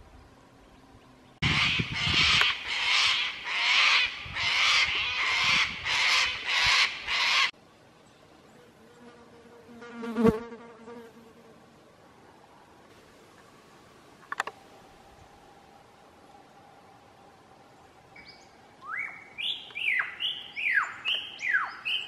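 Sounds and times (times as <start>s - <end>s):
cicadas calling in pulsing bursts: 1.4s - 7.6s.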